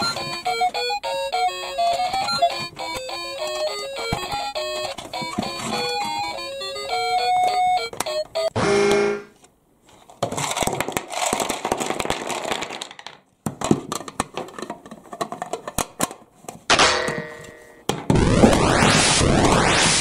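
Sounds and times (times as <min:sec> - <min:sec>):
plastic blocks rattling: 0:10.0 - 0:16.2.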